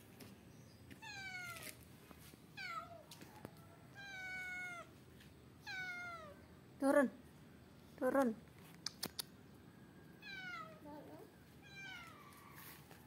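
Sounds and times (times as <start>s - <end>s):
cat meowing: 3.9s - 4.9s, 5.6s - 6.4s, 10.2s - 10.8s, 11.6s - 12.2s.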